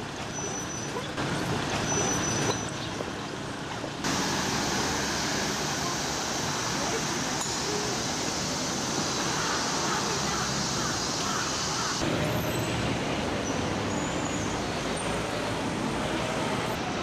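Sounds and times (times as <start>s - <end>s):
hiss of heavy road traffic: 0.0s - 17.0s
passing traffic: 0.0s - 17.0s
crowd chatter: 4.5s - 12.6s.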